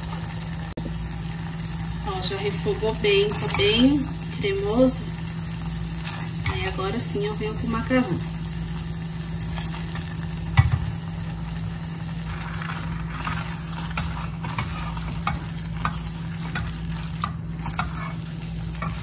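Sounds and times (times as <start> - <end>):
steady low hum: 0.0 - 19.0
spatula stirring thick sauce: 11.3 - 19.0.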